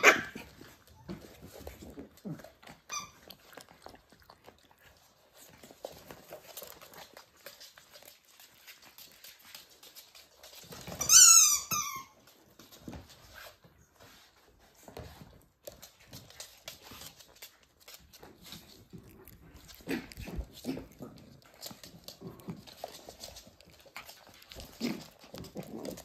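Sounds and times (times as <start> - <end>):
puppy yelping: 0.0 - 1.2
faint clicks and scuffling: 0.3 - 26.0.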